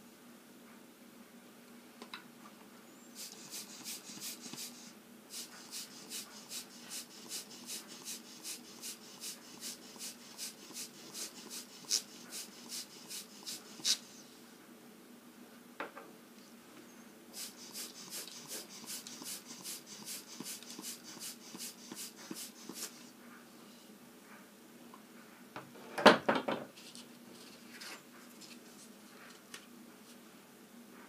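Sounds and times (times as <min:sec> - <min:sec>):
spray ink hissing spurts: 0:03.2 - 0:14.2, 0:17.3 - 0:23.1.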